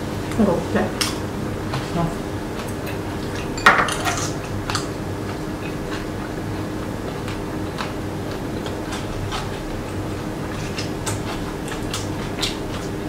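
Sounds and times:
cutlery clinking on ceramic bowls: 3.4s - 4.4s.

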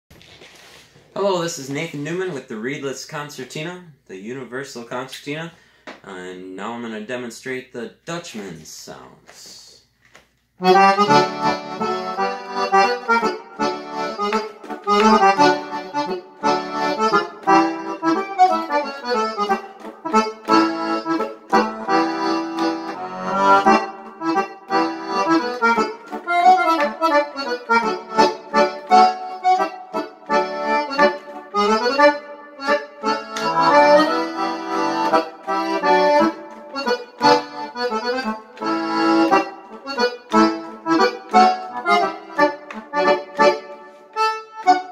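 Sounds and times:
digital concertina tune: 10.6s - 44.9s.

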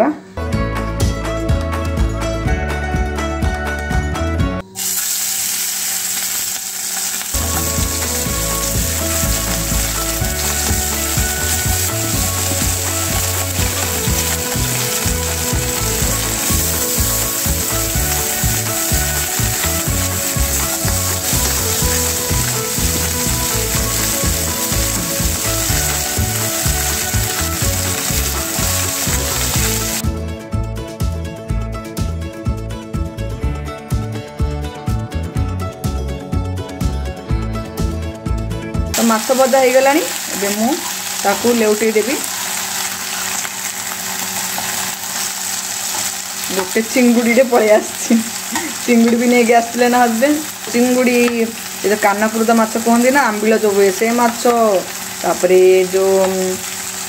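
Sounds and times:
fish sizzling in hot oil: 4.7s - 30.0s, 39.0s - 57.0s.

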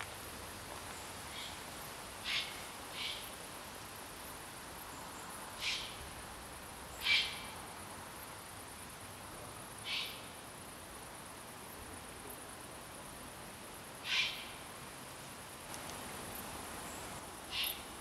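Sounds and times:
owl rasping calls: 5.6s - 6.0s, 7.0s - 7.4s, 14.0s - 14.5s, 17.5s - 17.8s.

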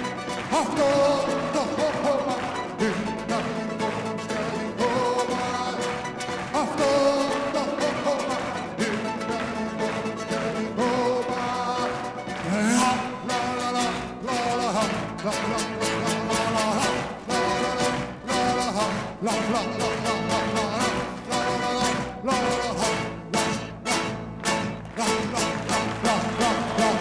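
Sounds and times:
orchestra with bouzouki: 0.0s - 27.0s
person singing: 0.0s - 27.0s.

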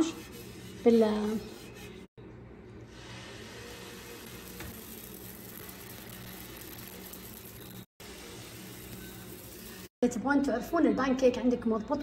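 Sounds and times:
batter sizzling on griddle: 2.9s - 9.9s.

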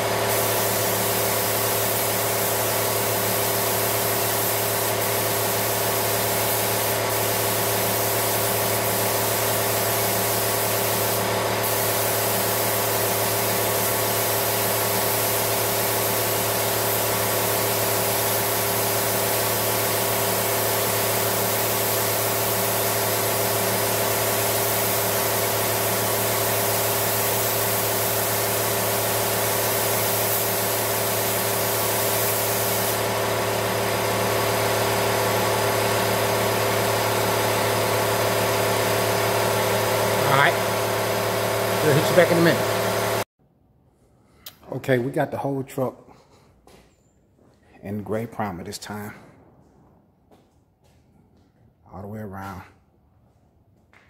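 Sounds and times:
paint spray hissing: 0.0s - 43.2s.

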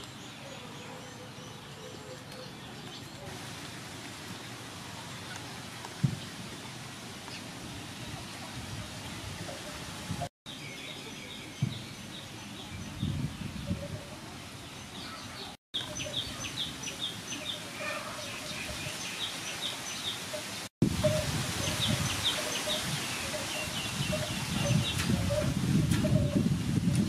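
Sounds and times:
small birds chirping: 21.6s - 26.4s.

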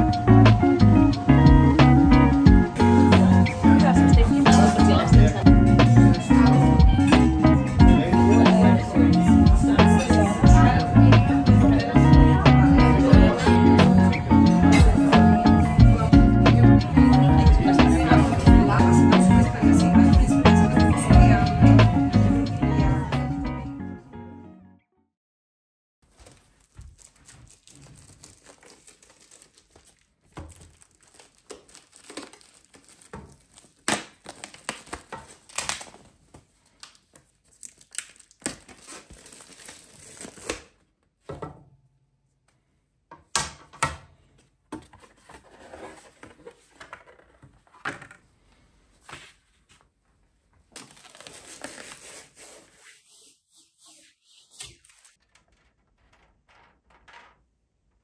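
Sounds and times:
plastic film peeling and crinkling: 26.0s - 40.9s, 50.7s - 53.0s, 54.4s - 57.3s.

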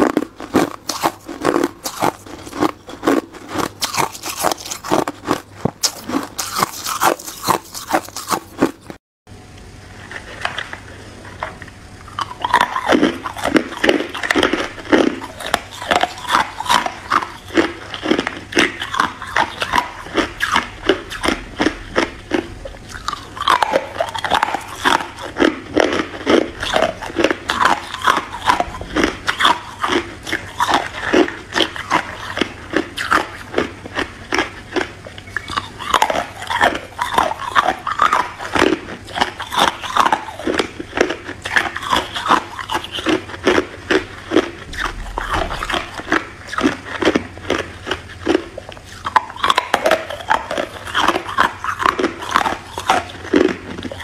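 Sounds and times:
ice cubes crunched by teeth: 0.0s - 8.9s.

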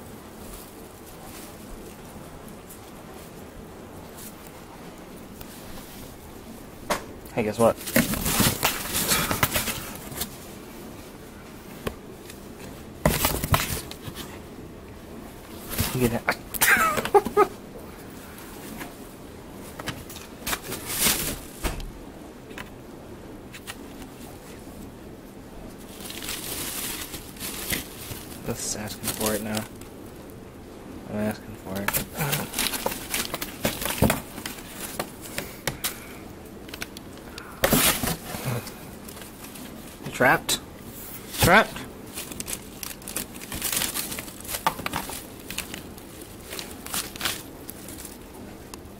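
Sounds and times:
plastic bag rustling: 7.6s - 14.5s, 15.3s - 21.6s, 25.6s - 30.4s, 31.3s - 40.2s, 40.8s - 48.9s
cardboard box handled: 13.0s - 14.4s, 31.8s - 35.5s.

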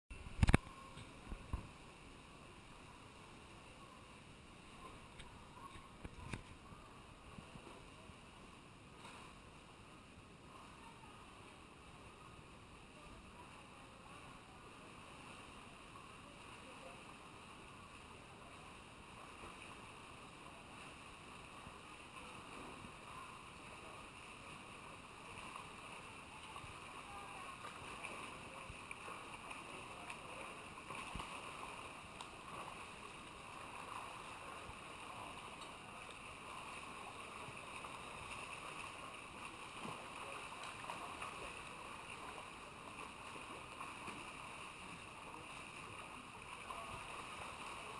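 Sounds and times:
swimmers splashing: 20.7s - 47.9s.

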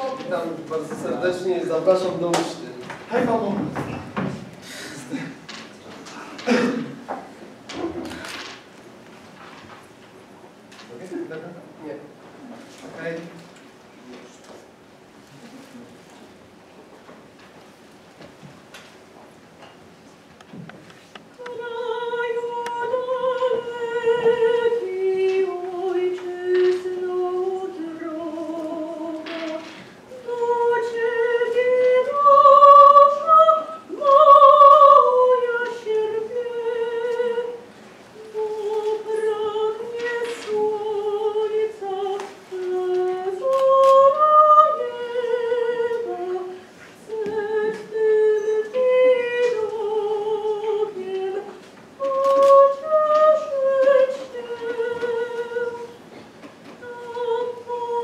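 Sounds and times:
woman singing with vibrato: 0.0s - 0.3s, 21.4s - 56.0s, 56.8s - 58.0s.

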